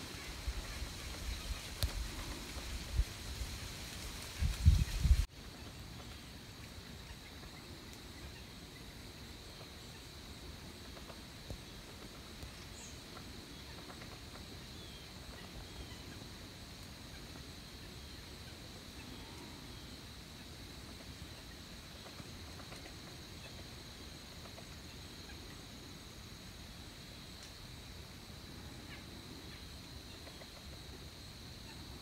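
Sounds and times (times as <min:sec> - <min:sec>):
soft ticks: 0:01.8 - 0:02.3.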